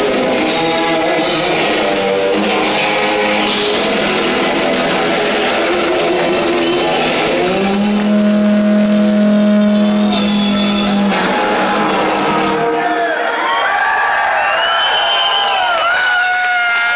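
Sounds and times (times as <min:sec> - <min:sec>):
distorted electric guitar: 0:00.0 - 0:13.2.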